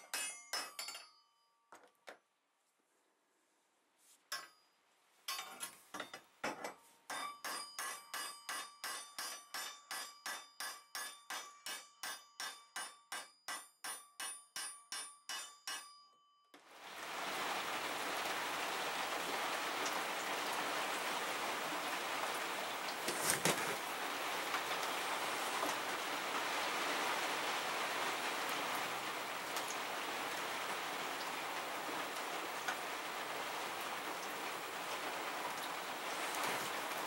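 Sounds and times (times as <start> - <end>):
hammer striking steel: 0.0 - 1.2, 7.1 - 16.1
steady hiss: 16.7 - 37.0.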